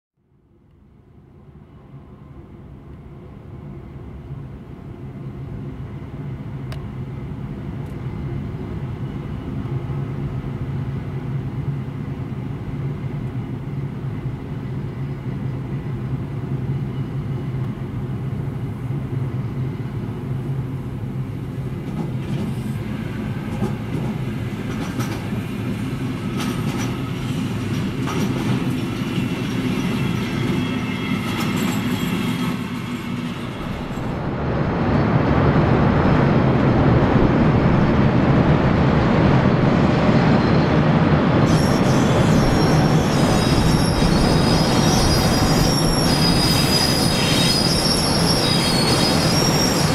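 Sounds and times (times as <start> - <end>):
electric locomotive hum: 0.5 - 49.9.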